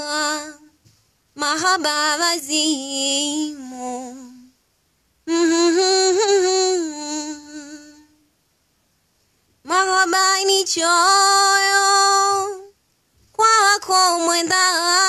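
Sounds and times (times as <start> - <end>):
woman chanting unaccompanied: 0.0 - 0.8, 1.4 - 4.6, 5.3 - 8.3, 9.6 - 12.8, 13.4 - 15.0.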